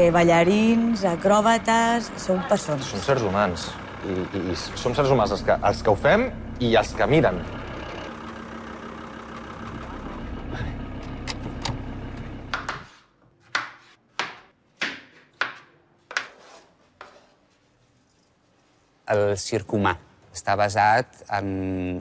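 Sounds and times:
van engine humming: 0.0 - 13.0
knife chopping on cutting board: 12.6 - 17.2.

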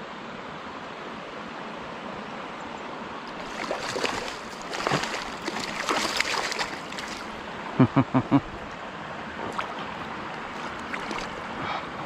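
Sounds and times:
small stream flowing: 0.0 - 12.0
fish splashing at surface: 3.4 - 7.4.

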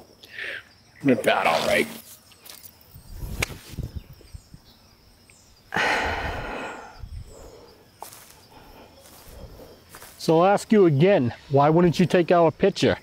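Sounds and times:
person exhaling loudly: 5.7 - 7.0.

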